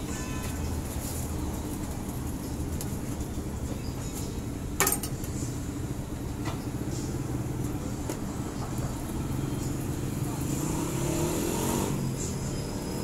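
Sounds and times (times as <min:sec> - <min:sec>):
busy street stall rumble: 0:00.0 - 0:13.0
utensils clinking on steel counter: 0:04.8 - 0:05.4.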